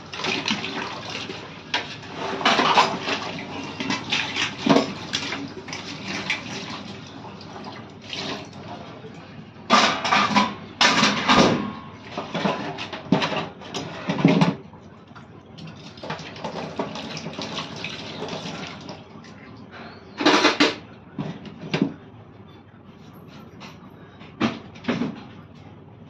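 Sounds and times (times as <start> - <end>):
running water: 15.6 - 19.0.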